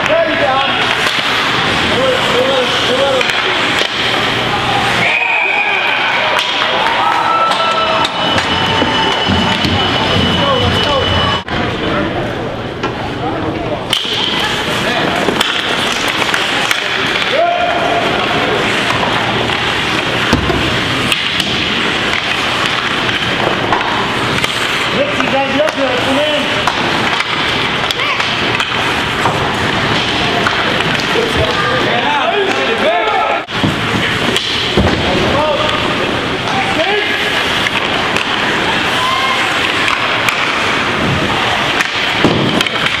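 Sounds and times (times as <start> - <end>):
hockey sticks and puck clacking: 0.0 - 5.0, 6.1 - 11.1, 13.9 - 43.0
skates rushing on ice: 0.0 - 11.0, 14.3 - 43.0
spectators' voices: 0.0 - 43.0
skates scraping on ice: 14.4 - 31.9.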